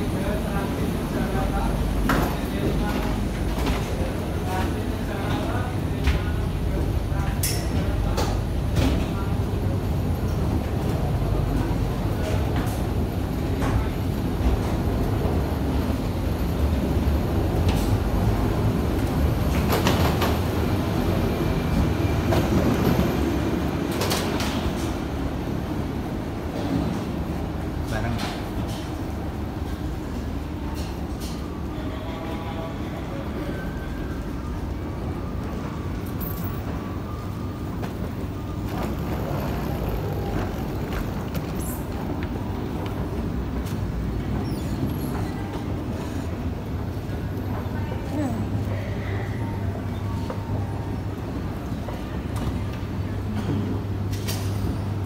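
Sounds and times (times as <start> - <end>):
terminal rumble and hum: 37.1 - 44.4.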